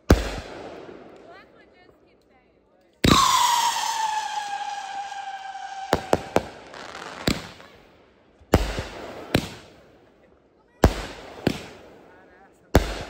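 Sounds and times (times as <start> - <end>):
firework bangs: 0.0 - 1.4, 3.0 - 9.8, 10.8 - 13.0
firework whistle falling in pitch: 3.0 - 7.3.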